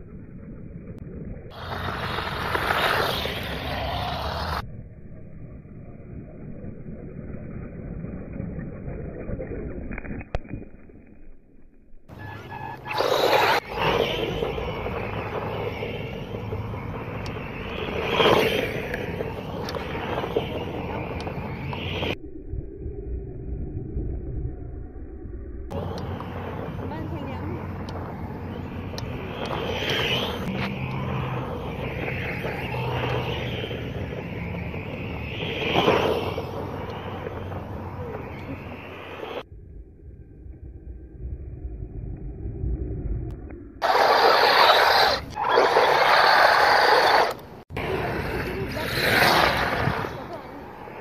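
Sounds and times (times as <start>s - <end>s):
rc car motor whine: 1.5s - 4.6s, 12.4s - 22.2s, 25.7s - 39.4s, 43.8s - 50.2s
tyres on dirt: 1.5s - 4.6s, 12.1s - 22.2s, 25.7s - 39.4s, 43.8s - 51.0s.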